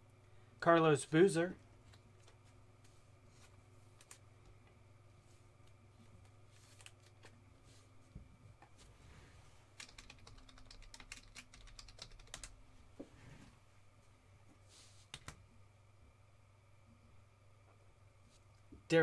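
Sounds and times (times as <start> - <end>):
computer keyboard typing: 9.8 - 12.6.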